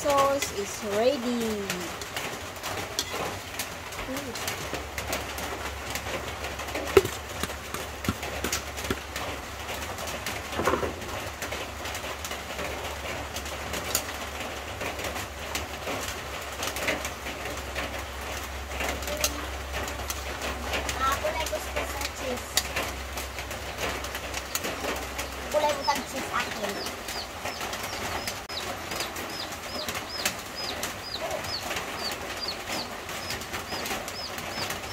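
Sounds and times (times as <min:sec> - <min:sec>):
birds calling: 0:03.0 - 0:11.0, 0:16.8 - 0:34.9.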